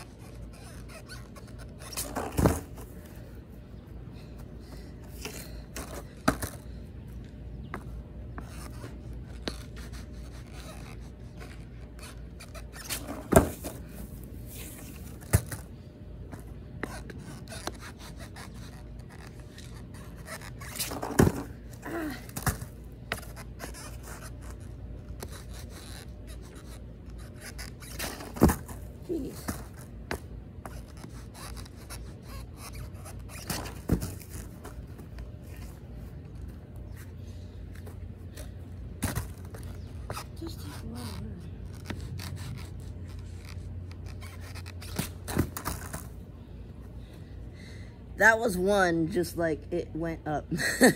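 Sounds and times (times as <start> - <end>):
scraping and rustling on grass: 8.4 - 15.7.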